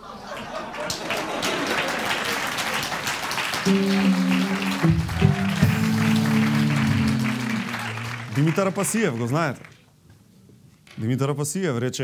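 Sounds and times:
studio audience applauding: 0:00.3 - 0:09.8
instrumental music sting: 0:03.7 - 0:08.1.

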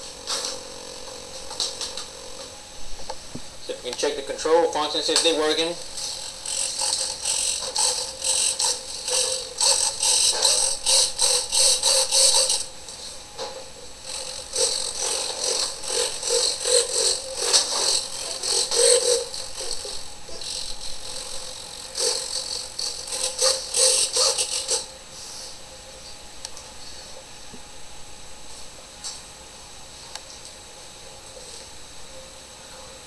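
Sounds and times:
servos whirring: 0:04.0 - 0:24.9.

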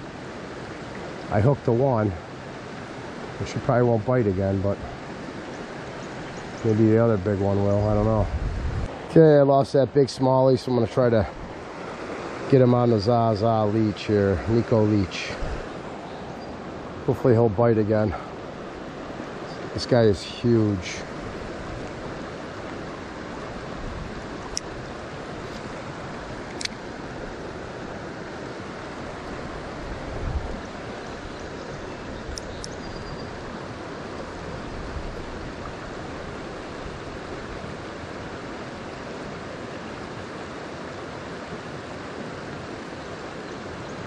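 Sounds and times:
creek water running over rocks: 0:00.0 - 0:44.0
faint clicks: 0:26.4 - 0:26.8.

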